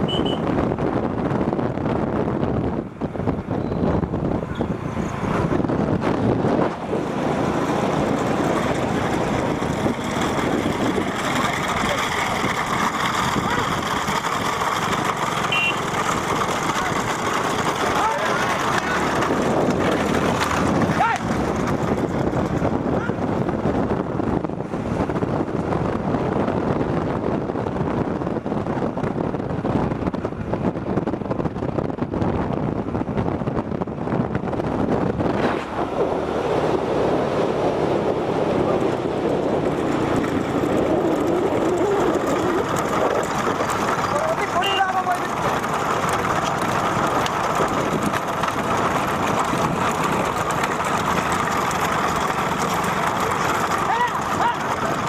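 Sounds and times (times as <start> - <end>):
vehicle engine and road noise: 0.0 - 55.0
wind buffeting microphone: 0.0 - 55.0.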